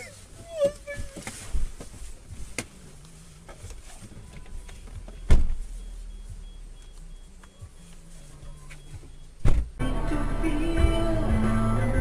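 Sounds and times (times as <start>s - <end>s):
vehicle low rumble: 0.0s - 12.0s
loud sharp thump: 9.4s - 9.8s.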